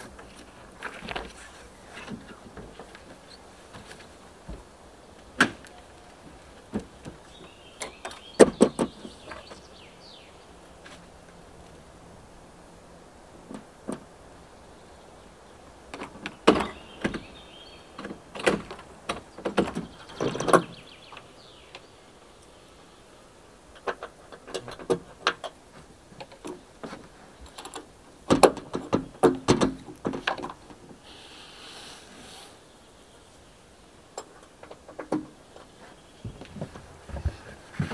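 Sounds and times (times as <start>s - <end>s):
camper roof fittings clicking and rattling: 6.4s - 9.6s, 15.9s - 17.4s, 18.0s - 20.8s, 23.7s - 31.0s, 34.1s - 35.7s.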